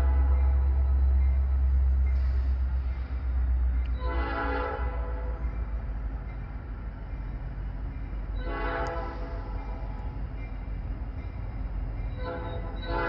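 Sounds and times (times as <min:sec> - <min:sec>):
locomotive air horn blasts: 0:00.0 - 0:00.6, 0:03.9 - 0:05.5, 0:08.4 - 0:09.7, 0:12.2 - 0:13.0.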